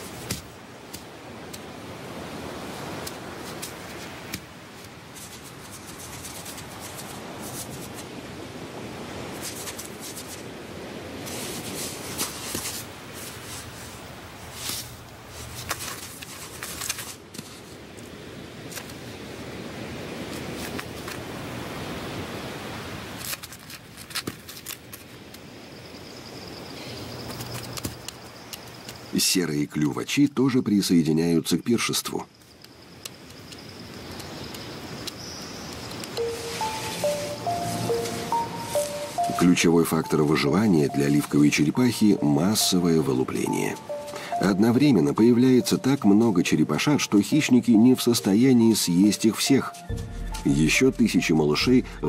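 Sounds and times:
birds pecking and scraping sand: 0:00.0 - 0:19.0, 0:20.1 - 0:21.9, 0:26.6 - 0:29.1, 0:32.4 - 0:46.4
thin high steady tone: 0:36.1 - 0:52.0.

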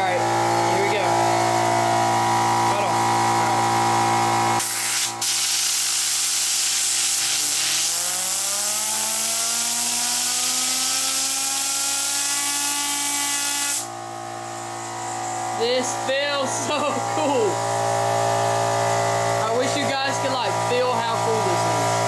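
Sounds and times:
air compressor motor hum: 0:00.0 - 0:22.0
compressed air hissing: 0:04.6 - 0:08.0.

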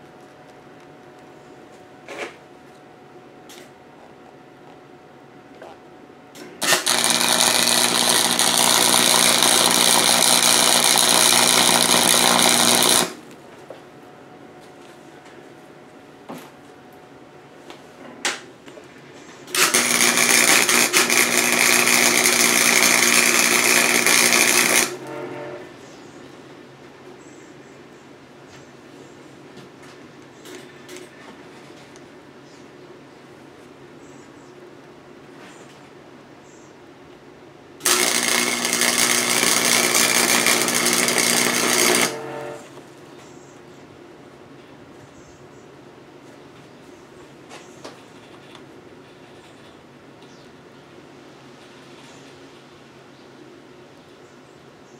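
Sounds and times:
welder arc crackling buzz: 0:06.4 - 0:13.4, 0:19.5 - 0:25.7, 0:37.8 - 0:42.8.

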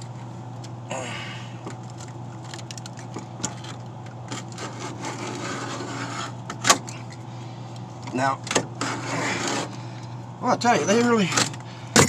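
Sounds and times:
steady low hum: 0:00.0 - 0:12.0
knife scraping caulk: 0:04.6 - 0:06.4.

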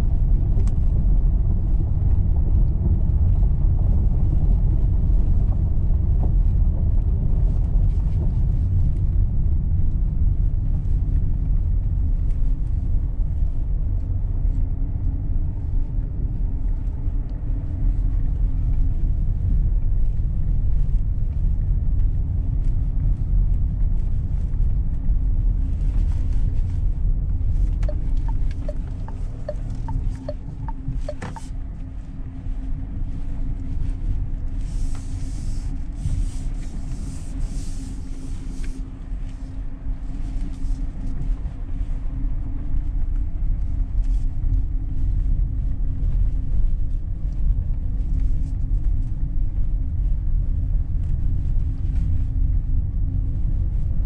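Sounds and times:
faint steady hum: 0:00.0 - 0:54.0
road and tyre rumble: 0:00.0 - 0:54.0.

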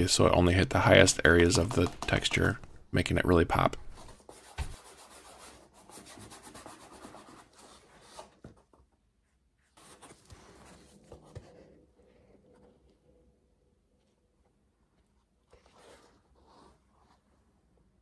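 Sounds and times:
paintbrush scratching on foam: 0:03.9 - 0:08.1.

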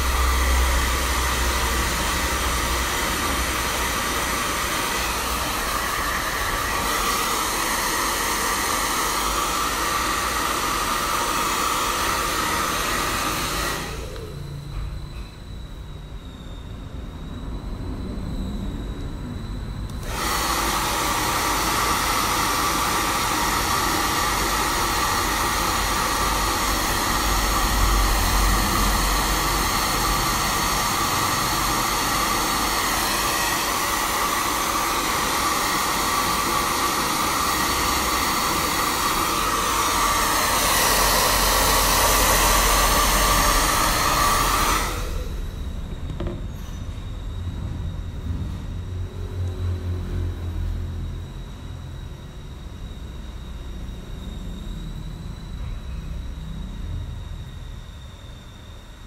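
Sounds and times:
hair dryer blowing: 0:00.0 - 0:14.6, 0:19.9 - 0:46.4.

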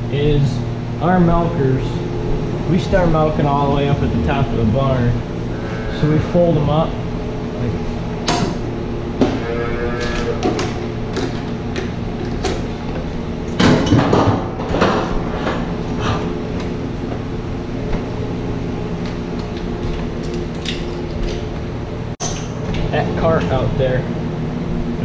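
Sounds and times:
steady machinery hum: 0:00.0 - 0:25.0
milker units clunking and rattling: 0:06.0 - 0:24.2.

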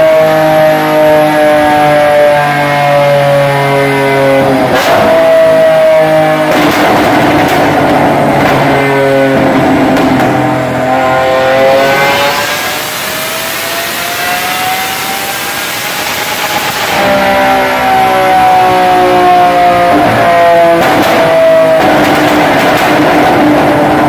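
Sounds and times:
car engine running loud: 0:00.0 - 0:24.0
exhaust crackles and pops: 0:06.4 - 0:10.8, 0:20.0 - 0:24.0.

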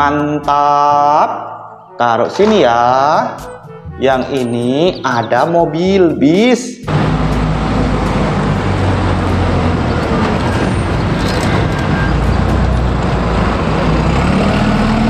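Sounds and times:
road traffic noise: 0:01.6 - 0:15.0
bus engine running: 0:06.8 - 0:15.0.

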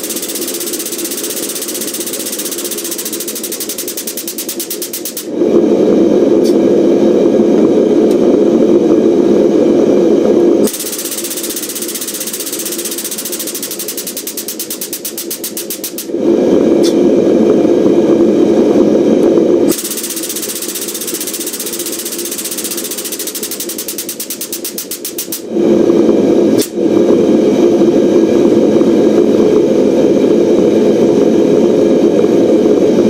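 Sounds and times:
air pump deep hum: 0:00.0 - 0:33.0.

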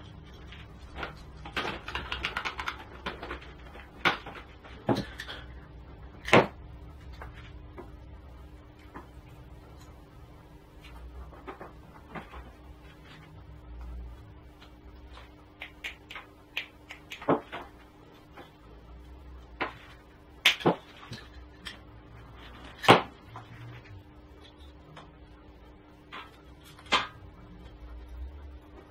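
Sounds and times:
faint steady hum: 0:00.0 - 0:28.9.

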